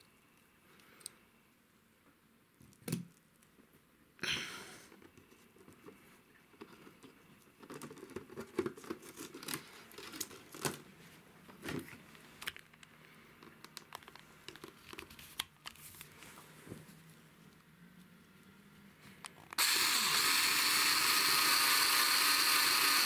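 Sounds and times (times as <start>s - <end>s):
faint clicks and scrapes: 4.9s - 10.8s.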